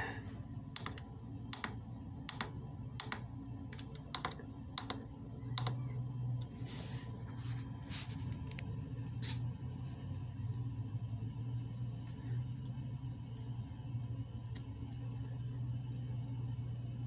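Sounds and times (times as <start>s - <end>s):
heater humming: 0.0s - 17.0s
button clicks: 0.8s - 5.0s.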